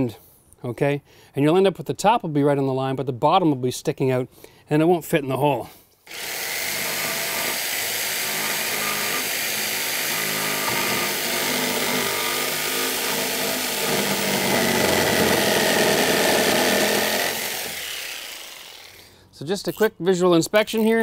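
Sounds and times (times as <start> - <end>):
jigsaw cutting wood: 6.1 - 19.1.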